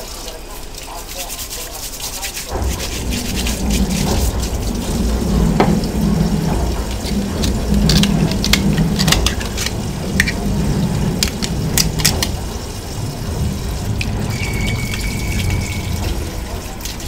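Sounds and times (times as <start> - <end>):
tap water running into sink: 0.0 - 17.0
knife scraping shell: 7.4 - 10.4
thin high tone: 14.3 - 16.8.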